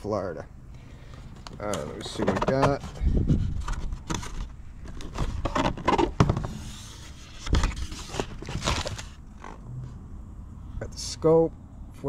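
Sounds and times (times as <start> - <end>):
cardboard and plastic rustling: 1.1 - 9.6.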